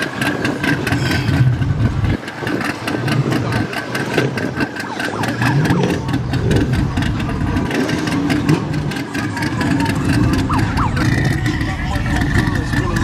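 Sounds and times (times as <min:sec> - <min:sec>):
car engine revving: 0:00.0 - 0:13.0
cars driving slowly past: 0:00.0 - 0:13.0.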